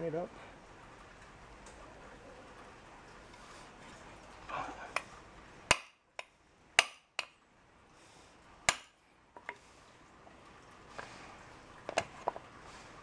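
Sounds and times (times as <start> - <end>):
hammer striking hole punch: 5.7 - 6.0, 6.8 - 7.3, 8.7 - 8.9.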